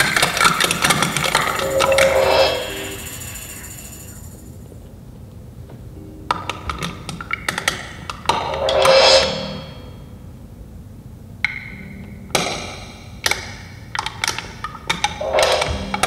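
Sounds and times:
cymbal crash: 0.0s - 4.5s
ringing pitched ping: 0.2s - 4.6s.

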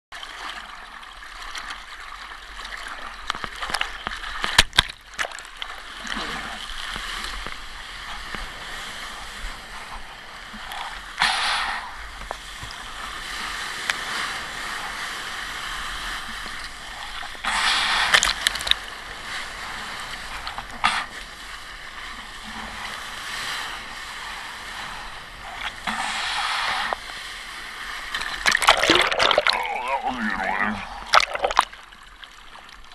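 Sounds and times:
water rushing past surfboard: 0.2s - 32.9s.

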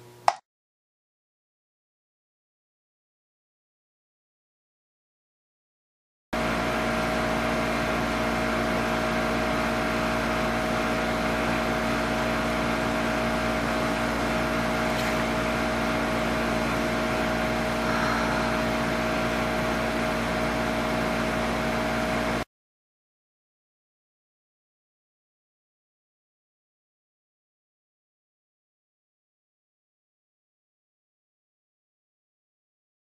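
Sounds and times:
constant hum: 14.5s - 20.2s
faint short sigh-like sound: 17.8s - 19.2s.

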